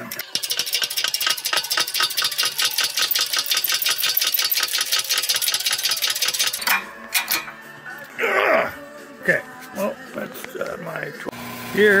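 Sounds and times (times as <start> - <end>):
press pump clicking rapidly: 0.0 - 6.6.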